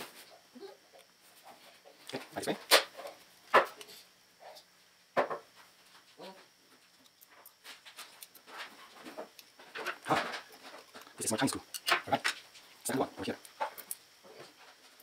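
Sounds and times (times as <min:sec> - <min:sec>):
handling ticks and rustles: 0:05.5 - 0:15.0.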